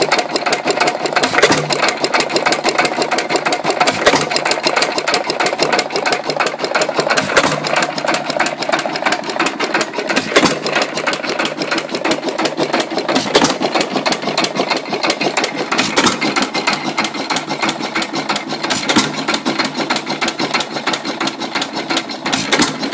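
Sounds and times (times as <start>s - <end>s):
engine clattering: 0.0s - 22.9s.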